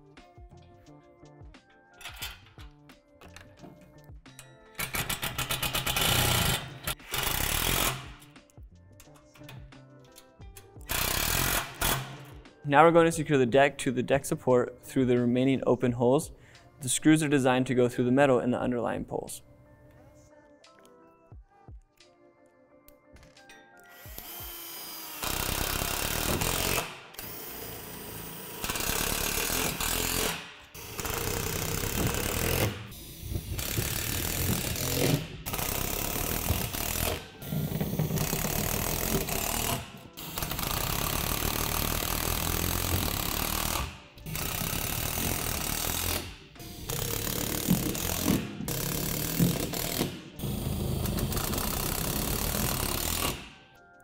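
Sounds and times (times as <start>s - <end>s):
cordless driver driving screws: 23.9s - 53.5s.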